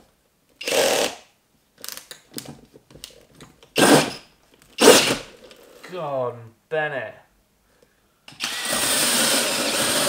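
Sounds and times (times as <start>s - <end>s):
drill hole saw cutting plasterboard: 0.6s - 1.2s, 8.4s - 10.0s.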